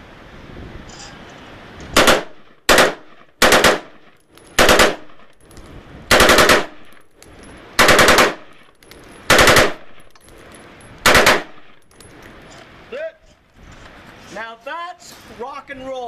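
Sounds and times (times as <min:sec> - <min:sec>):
rifle firing rapid bursts: 0:02.0 - 0:04.0, 0:04.6 - 0:05.2, 0:06.1 - 0:06.8, 0:07.8 - 0:08.5, 0:09.3 - 0:09.9, 0:11.0 - 0:11.6.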